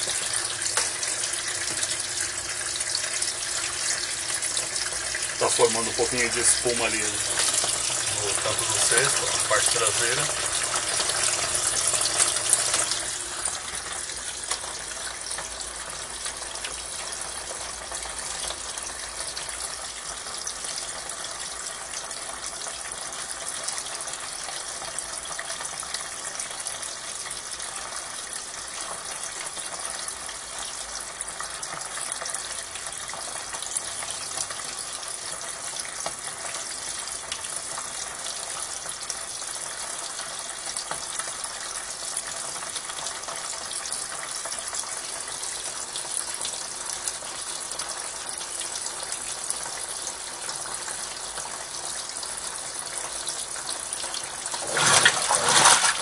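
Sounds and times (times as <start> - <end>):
water gushing into washing machine: 0.0 - 56.0.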